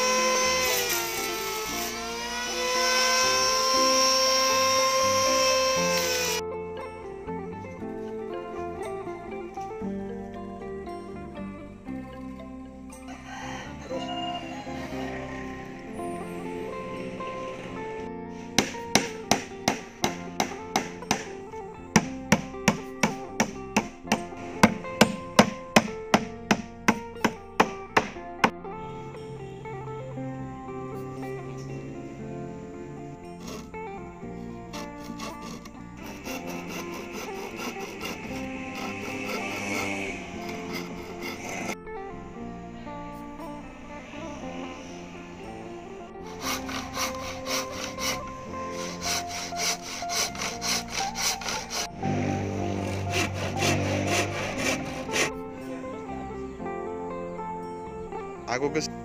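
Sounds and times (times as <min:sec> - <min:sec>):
hand saw cutting wood: 0:00.0 - 0:06.4, 0:14.4 - 0:28.5, 0:33.2 - 0:33.8, 0:34.7 - 0:41.8, 0:46.2 - 0:55.4
guitar background music: 0:00.0 - 0:59.0
hammer driving nail into wood: 0:18.6 - 0:28.2.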